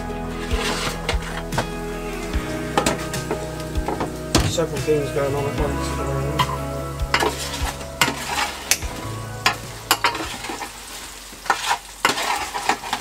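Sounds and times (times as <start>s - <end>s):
hot fat sizzling: 0.0s - 13.0s
metal utensil scraping a tray: 11.5s - 13.0s.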